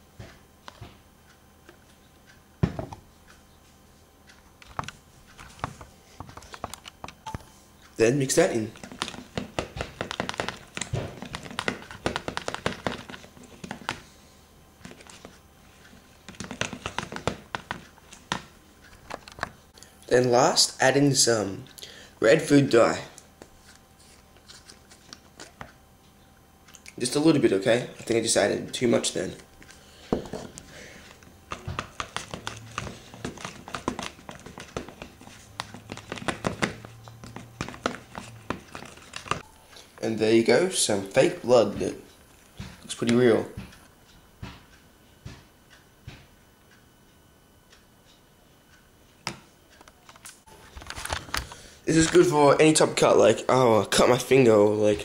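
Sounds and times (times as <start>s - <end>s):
metal spoon stirring thick mixture: 31.5s - 39.4s.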